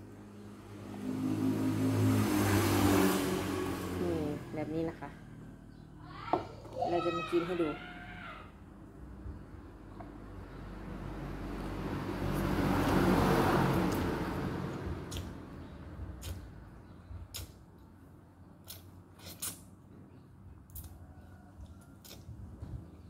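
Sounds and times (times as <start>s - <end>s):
passing vehicle rumble: 0.0s - 6.0s, 8.7s - 17.3s.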